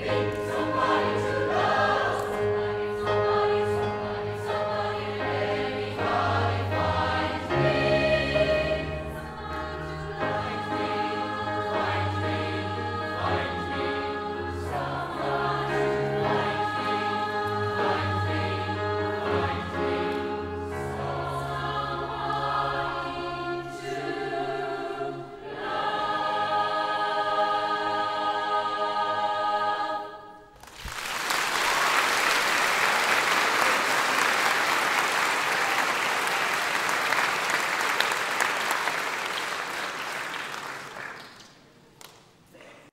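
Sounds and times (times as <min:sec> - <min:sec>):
mixed choir singing: 0:00.0 - 0:30.6
piano: 0:00.0 - 0:41.0
audience applauding: 0:30.6 - 0:42.2.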